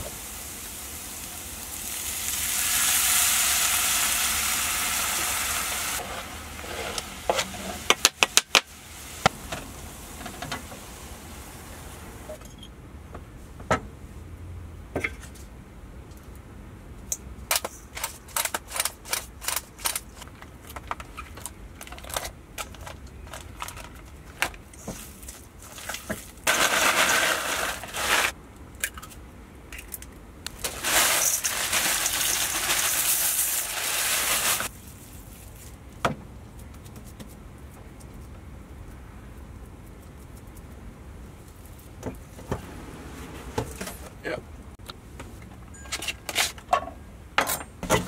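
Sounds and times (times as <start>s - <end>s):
packaging crinkling: 25.1s - 28.4s, 30.6s - 34.7s.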